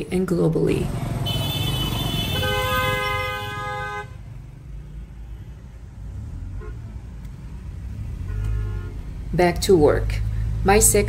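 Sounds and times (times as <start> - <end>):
traffic rumble: 0.0 - 11.0
vehicle horn honking: 1.2 - 4.2, 6.6 - 6.9, 8.2 - 9.0.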